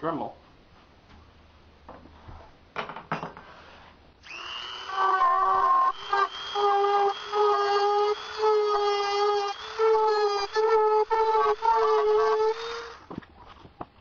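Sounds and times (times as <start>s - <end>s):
rotary tool whining: 4.2s - 13.1s.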